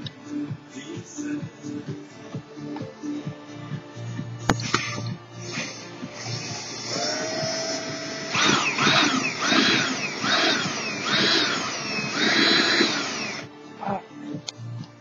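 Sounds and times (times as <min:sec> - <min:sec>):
power drill whining: 0:04.6 - 0:13.5.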